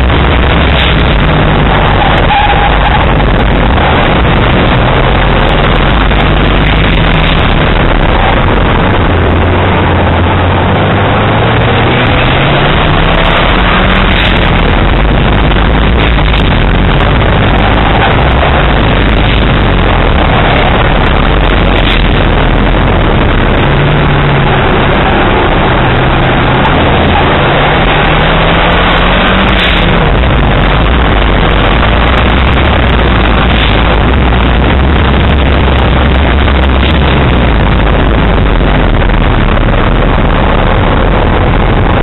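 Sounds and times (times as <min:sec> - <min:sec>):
faint car engine: 0:00.0 - 0:42.0
wind and road rush: 0:00.0 - 0:42.0.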